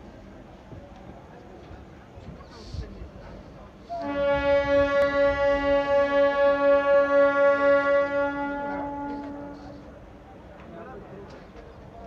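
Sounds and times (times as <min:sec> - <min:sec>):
train horn blast: 0:03.9 - 0:10.0.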